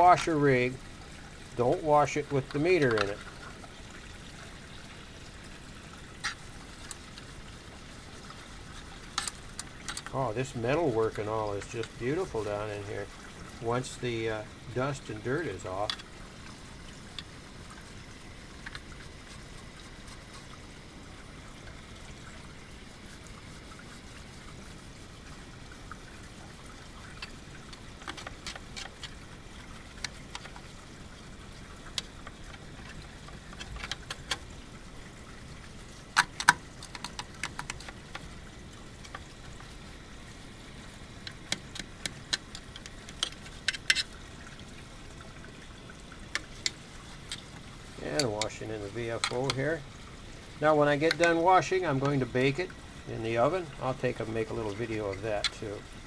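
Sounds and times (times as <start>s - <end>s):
water trickling over metal: 0.0s - 56.0s
light clicks and taps: 15.1s - 16.1s, 30.0s - 30.7s, 41.2s - 44.1s, 48.1s - 49.6s, 51.0s - 52.6s.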